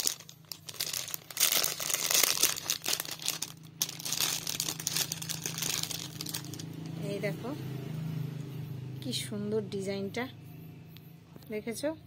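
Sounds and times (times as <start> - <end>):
plastic packet crinkling: 0.0 - 6.9.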